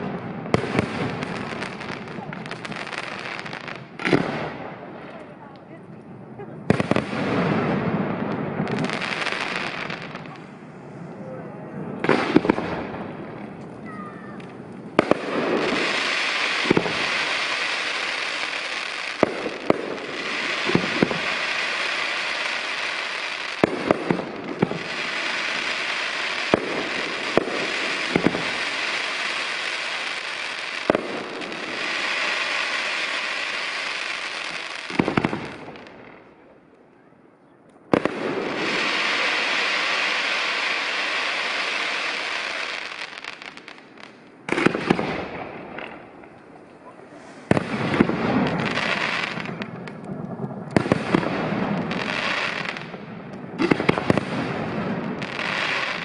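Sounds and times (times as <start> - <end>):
fireworks crackling: 0.0 - 56.0
firework shells bursting: 14.4 - 35.9.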